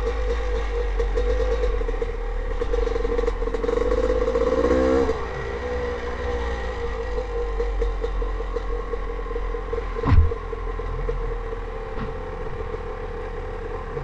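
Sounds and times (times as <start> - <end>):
dirt bike engine running: 0.0 - 14.0
loud thump: 10.0 - 10.4.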